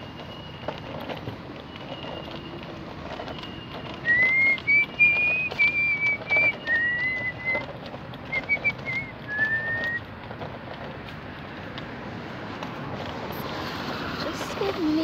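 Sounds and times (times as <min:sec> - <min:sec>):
person whistling a tune: 0:04.0 - 0:07.6, 0:08.3 - 0:10.0.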